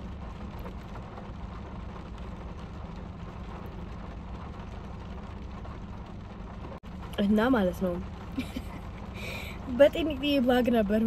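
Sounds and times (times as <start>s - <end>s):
car engine hum and road noise: 0.0s - 11.0s.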